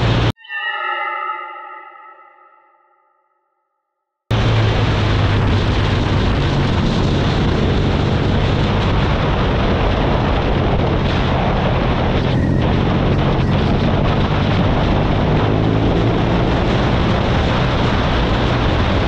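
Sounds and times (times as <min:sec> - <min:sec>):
motorcycle engine running: 0:04.3 - 0:19.0
wind buffeting microphone: 0:04.3 - 0:19.0.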